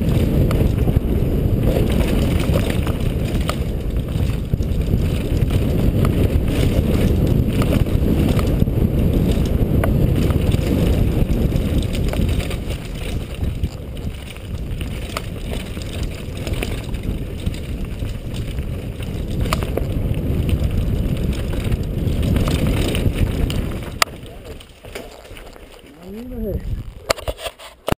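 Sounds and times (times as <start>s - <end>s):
wind buffeting microphone: 0.0s - 27.4s
mountain bike rumbling on dirt trail: 0.0s - 27.9s
sharp knocks from bike: 21.3s - 25.7s.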